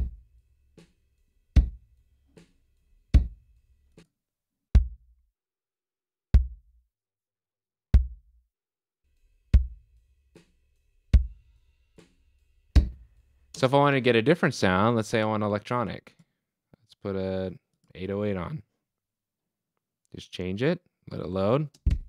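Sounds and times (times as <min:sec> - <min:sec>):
kick drum hits: 0:00.0 - 0:00.2, 0:01.6 - 0:01.8, 0:03.2 - 0:03.4, 0:04.8 - 0:05.1, 0:06.4 - 0:06.8, 0:07.9 - 0:08.4, 0:09.5 - 0:09.8, 0:11.2 - 0:11.4, 0:12.8 - 0:13.0.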